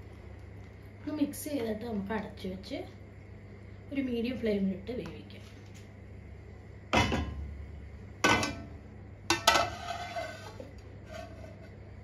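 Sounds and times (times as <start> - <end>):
metal lid clanking on clay pot: 8.2 - 8.7.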